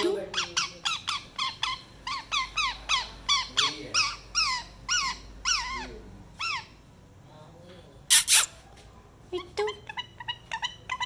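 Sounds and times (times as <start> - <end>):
parakeet calling: 0.0 - 7.0, 9.6 - 11.0.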